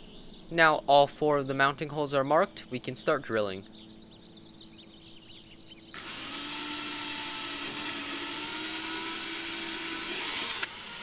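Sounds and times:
cordless drill whining: 0:06.0 - 0:11.0.

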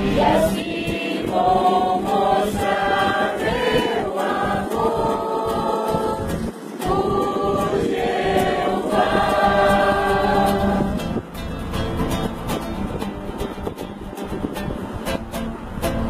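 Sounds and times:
group singing a hymn: 0:00.0 - 0:11.2.

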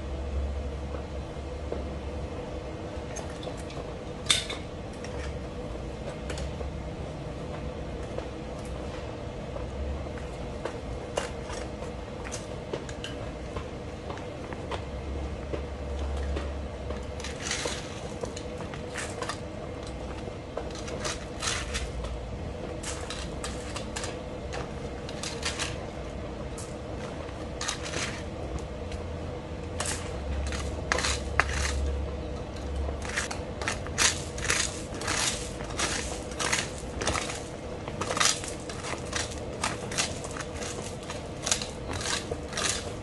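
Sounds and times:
gravel crunching and rattling: 0:32.6 - 0:43.0.

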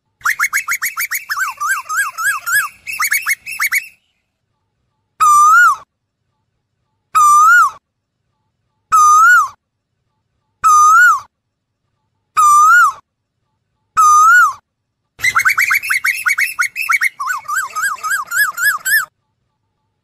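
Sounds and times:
bird whistled calls: 0:00.2 - 0:04.0, 0:15.2 - 0:19.1.

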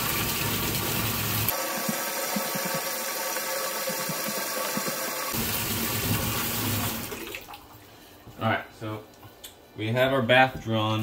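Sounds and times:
tap water pouring into metal sink: 0:00.0 - 0:07.7.

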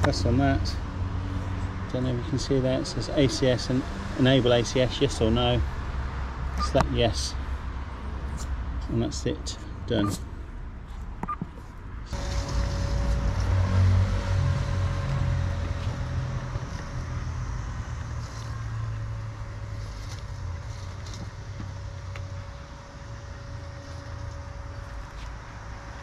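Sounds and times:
robotic lawn mower motor whine: 0:12.1 - 0:19.8.

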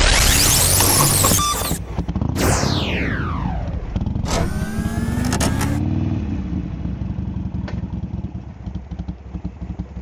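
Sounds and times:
engine revving: 0:01.7 - 0:06.6
motorcycle engine idling: 0:06.5 - 0:10.0.

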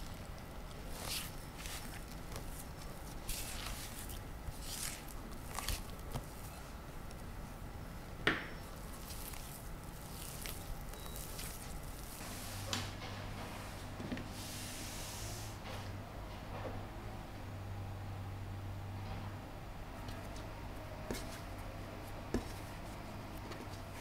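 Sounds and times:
hands kneading sticky dough: 0:00.0 - 0:15.6, 0:19.9 - 0:24.0.

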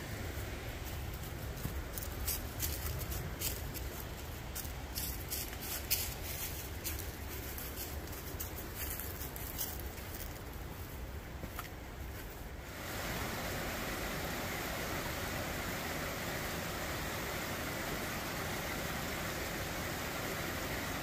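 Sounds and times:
footsteps crunching dry leaves: 0:00.2 - 0:12.7
creek rushing: 0:12.6 - 0:21.0.

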